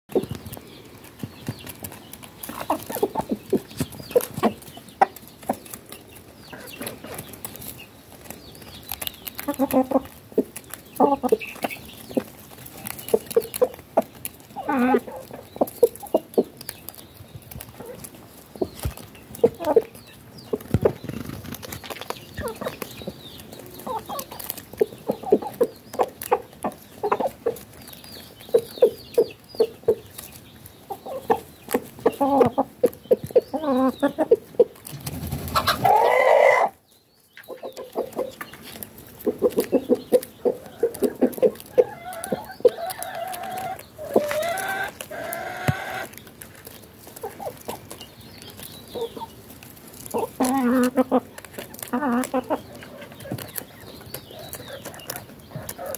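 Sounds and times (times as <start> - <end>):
hens and rooster clucking: 0.1 - 55.9
pecking taps on dirt: 37.4 - 46.5.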